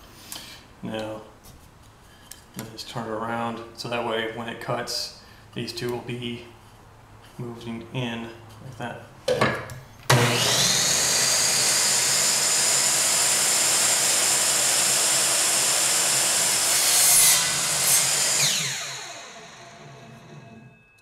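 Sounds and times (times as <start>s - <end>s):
miter saw cutting wood: 10.1s - 20.7s
saw motor whine spinning down: 10.1s - 20.8s.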